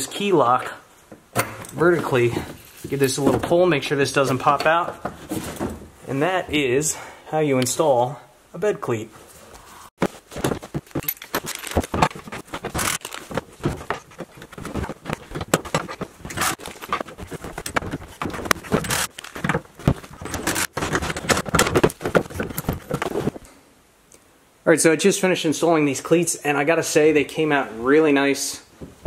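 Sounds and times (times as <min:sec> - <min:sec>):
hardware clicks knocks and scrapes: 0:10.0 - 0:23.4.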